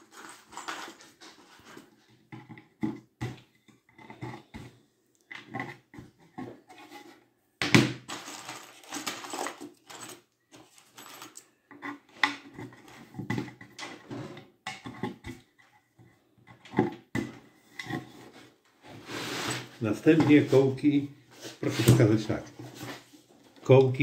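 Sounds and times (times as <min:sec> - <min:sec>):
wooden dowels clicking and knocking: 0:08.1 - 0:18.2.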